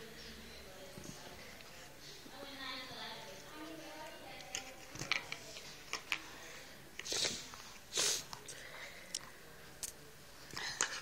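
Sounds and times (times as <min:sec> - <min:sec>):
breathy hissing bursts: 0:06.5 - 0:08.3.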